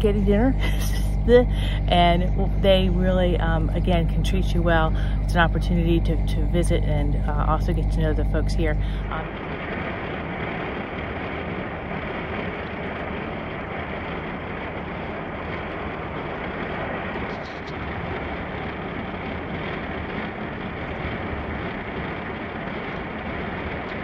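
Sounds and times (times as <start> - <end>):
engine noise inside cab: 0.0 - 24.0
road and tyre noise: 6.6 - 24.0.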